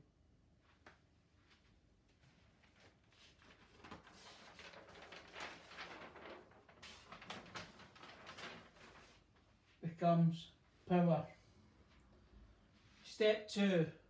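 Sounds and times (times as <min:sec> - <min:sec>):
paper sheet rustling and crinkling: 0:02.1 - 0:09.8.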